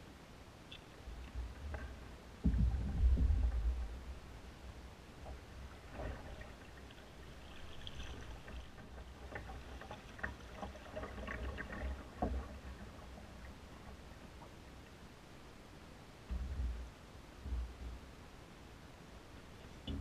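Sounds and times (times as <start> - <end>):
low steady rumble: 0.0 - 20.0
paddle strokes splashing water: 5.2 - 14.8.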